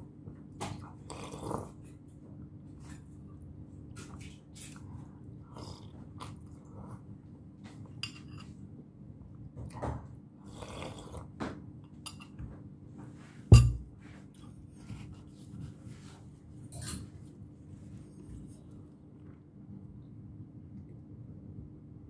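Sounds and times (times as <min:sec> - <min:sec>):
low steady hum: 0:00.0 - 0:22.0
chewing: 0:05.5 - 0:06.8
slurping soup: 0:10.5 - 0:11.4
spoon clinking glass bowl: 0:13.5 - 0:13.8.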